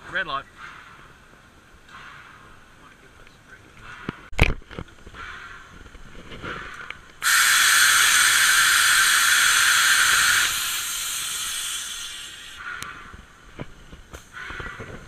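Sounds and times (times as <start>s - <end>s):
steam hissing loudly: 7.2s - 12.6s.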